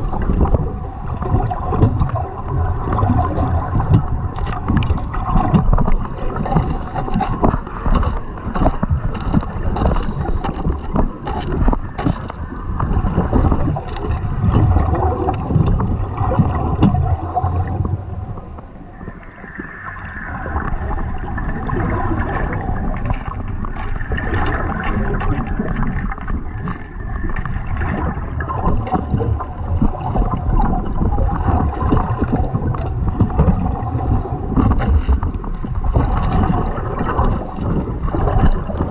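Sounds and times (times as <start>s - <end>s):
underwater water surge rumbling: 0.0s - 38.9s.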